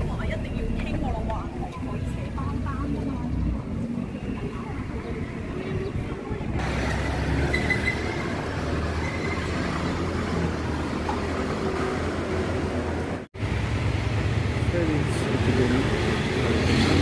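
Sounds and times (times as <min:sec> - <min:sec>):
general hubbub: 0:00.0 - 0:08.4
low traffic rumble: 0:00.0 - 0:17.0.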